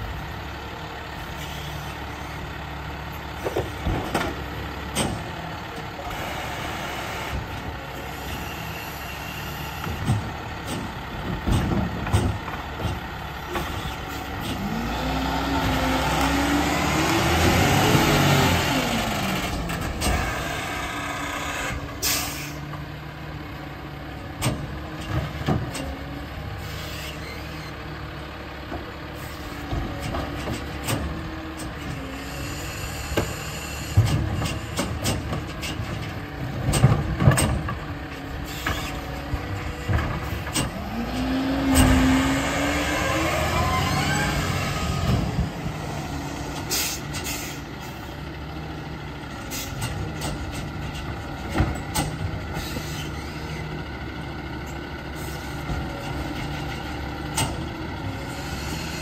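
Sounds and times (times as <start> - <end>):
diesel engine running: 0.0 - 59.0
clanks and knocks from carts: 3.4 - 6.3, 9.8 - 14.8, 24.3 - 26.1, 28.7 - 32.2, 33.1 - 41.1, 49.2 - 53.5, 54.5 - 58.1
air brake hiss: 22.0 - 22.6, 46.7 - 47.6.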